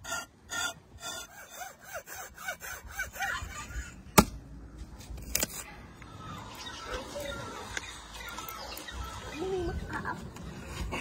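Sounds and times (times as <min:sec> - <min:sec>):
knife scraping hide: 0:00.0 - 0:03.9.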